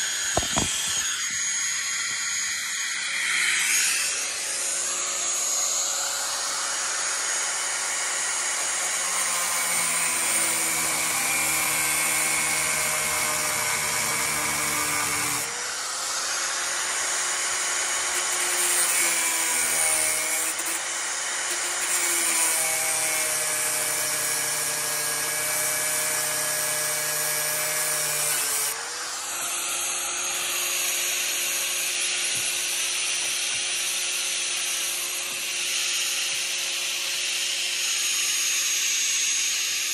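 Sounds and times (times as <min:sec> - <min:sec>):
angle grinder cutting metal: 0:00.0 - 0:39.9.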